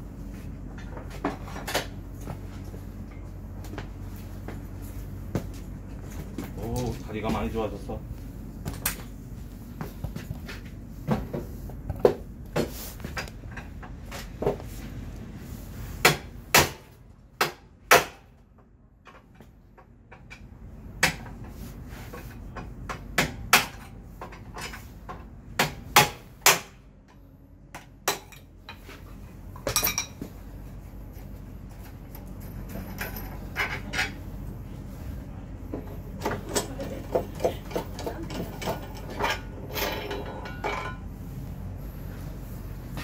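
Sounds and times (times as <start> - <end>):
hand tools and metal clinking: 19.0 - 25.3, 27.0 - 34.4, 35.7 - 41.1.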